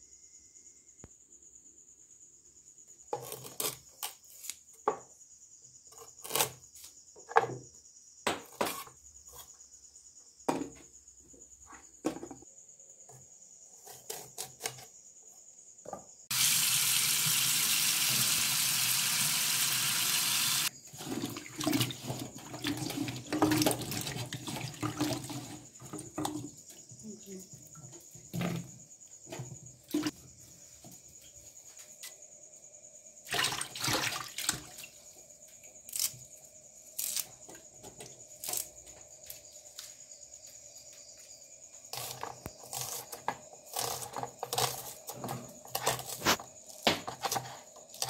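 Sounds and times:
splashing water in bowl: 33.3 - 35.0.

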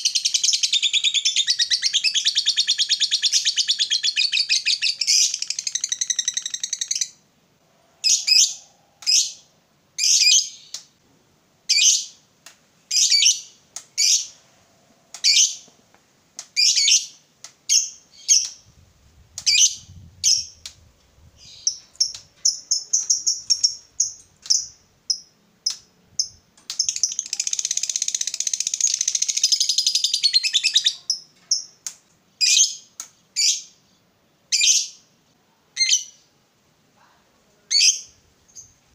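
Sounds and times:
lovebird chirping: 0.0 - 7.2, 7.8 - 10.8, 12.9 - 14.4, 15.1 - 15.7, 16.6 - 18.7, 19.4 - 20.7, 21.3 - 31.8
lovebird rapid chattering: 21.6 - 30.9.

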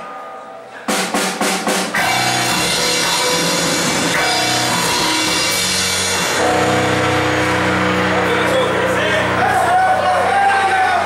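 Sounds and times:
drum hits: 0.9 - 8.7
heavy metal band playing: 1.2 - 11.0.

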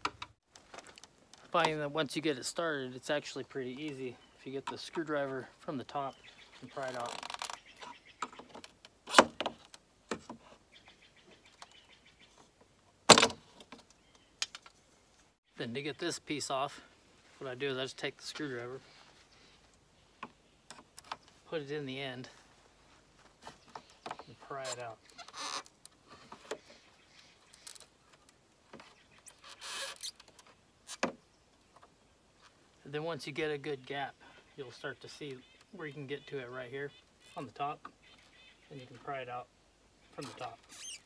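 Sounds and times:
faint bird chirps: 26.4 - 28.2.

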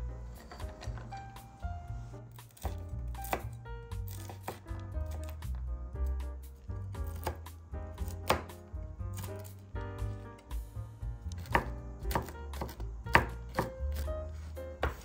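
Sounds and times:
knife chopping on wooden board: 2.5 - 5.6, 7.0 - 10.2, 11.3 - 15.0.

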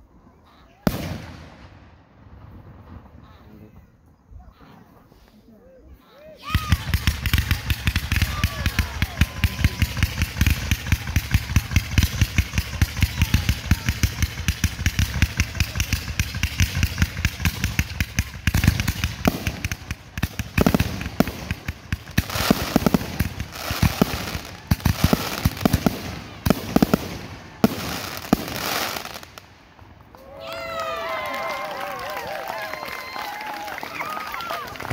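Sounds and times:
fireworks booming and crackling: 0.8 - 3.8, 6.5 - 30.2.

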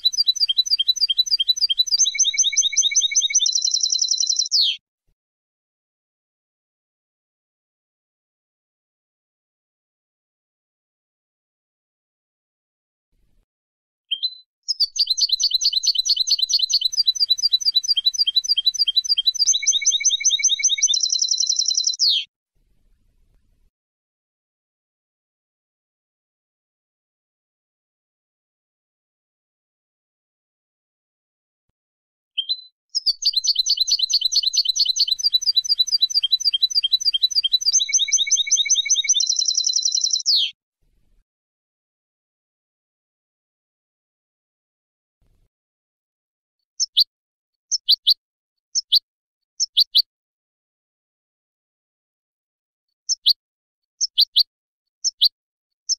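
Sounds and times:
goldfinch trilling song: 0.0 - 4.8, 14.1 - 22.2, 32.4 - 40.5, 46.8 - 47.1, 47.7 - 48.2, 48.8 - 49.0, 49.6 - 50.1, 53.1 - 53.4, 54.0 - 55.3.

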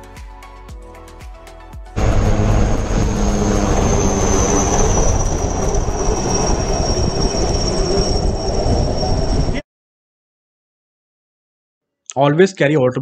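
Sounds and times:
helicopter rotor and engine: 2.0 - 9.6
high turbine whine: 2.0 - 9.6.

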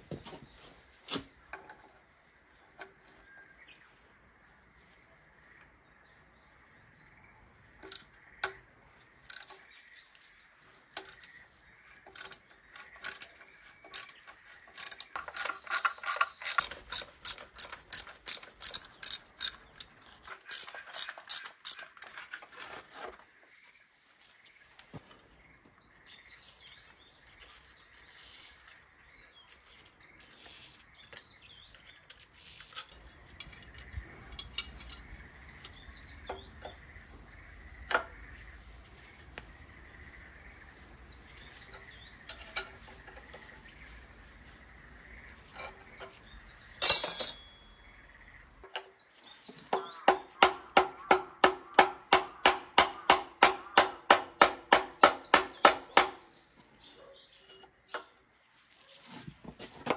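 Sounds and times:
hand ratchet clicking: 13.0 - 21.9.

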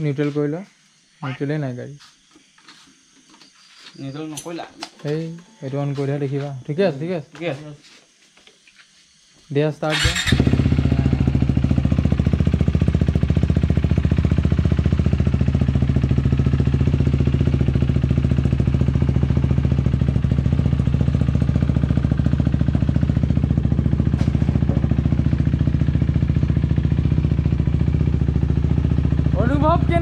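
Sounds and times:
motorcycle engine idling: 9.9 - 30.0.

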